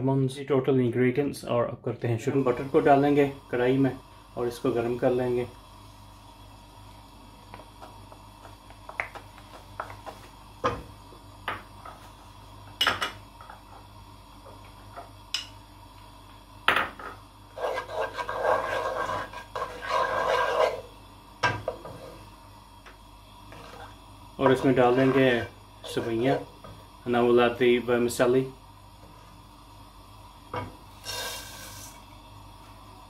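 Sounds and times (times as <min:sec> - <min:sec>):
wooden spoon scraping a pan: 0:17.0 - 0:20.9, 0:21.6 - 0:22.3, 0:23.5 - 0:26.5.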